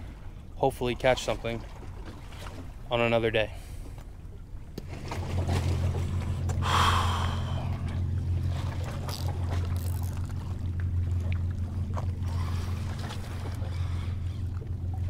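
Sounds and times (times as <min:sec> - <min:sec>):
low engine drone: 0:00.0 - 0:15.0
breathy rush of noise: 0:05.9 - 0:08.4.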